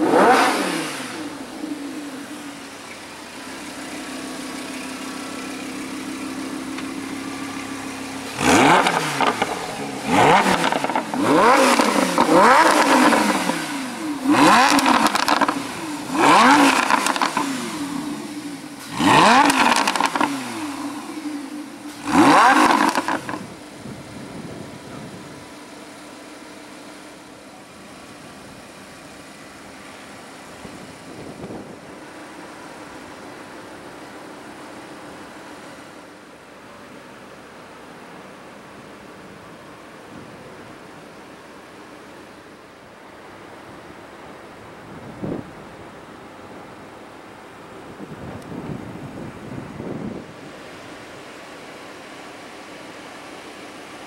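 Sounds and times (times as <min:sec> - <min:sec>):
car engine revving: 0:00.0 - 0:23.8
car engine idling: 0:00.0 - 0:54.0.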